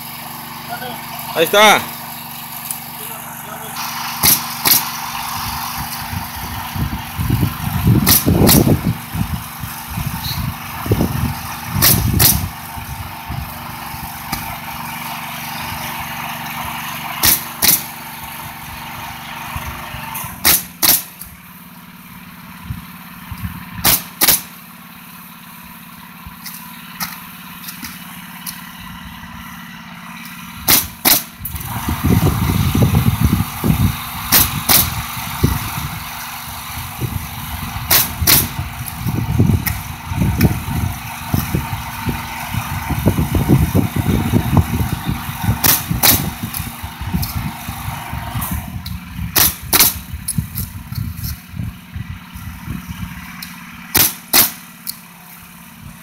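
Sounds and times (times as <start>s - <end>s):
steady motor hum: 0.0s - 56.0s
nail gun shots: 4.2s - 5.0s, 8.0s - 8.8s, 11.8s - 12.5s, 17.2s - 18.0s, 20.2s - 21.3s, 23.8s - 24.6s, 30.6s - 31.6s, 34.3s - 35.0s, 37.9s - 38.6s, 45.6s - 46.7s, 49.4s - 50.7s, 53.9s - 55.0s.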